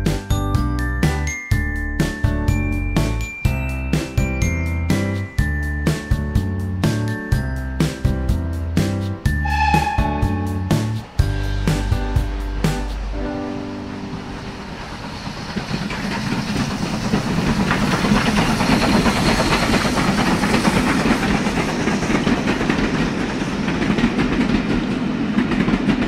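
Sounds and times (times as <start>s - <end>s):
toy train clattering on track: 15.5s - 24.7s.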